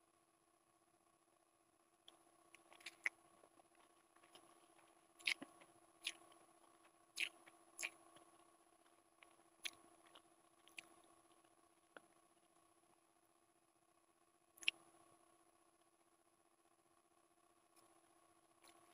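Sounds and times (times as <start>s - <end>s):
faint steady hum: 0.0s - 18.9s
wet mouth smacks and clicks: 2.7s - 3.1s, 5.2s - 6.2s, 7.2s - 8.0s.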